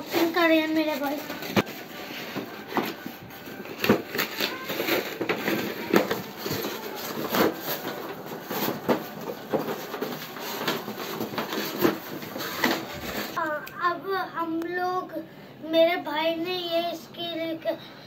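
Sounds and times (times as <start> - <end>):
plastic packaging rustling and crinkling: 0.0 - 13.4.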